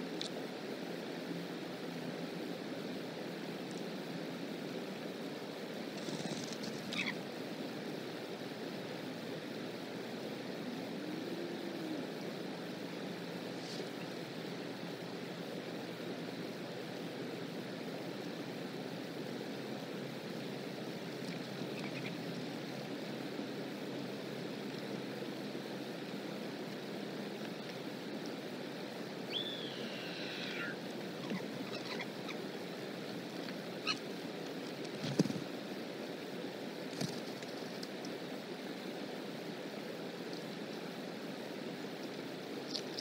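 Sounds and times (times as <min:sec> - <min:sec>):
descending whistled bird call: 0:29.3 - 0:30.8.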